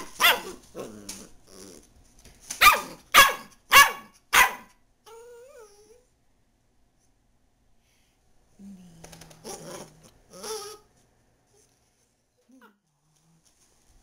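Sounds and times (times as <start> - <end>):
puppy barking: 0.0 - 0.6, 2.6 - 4.8
puppy whining: 0.0 - 1.9, 5.0 - 6.1, 9.4 - 10.9
puppy grumbling: 0.4 - 1.9, 9.2 - 10.9.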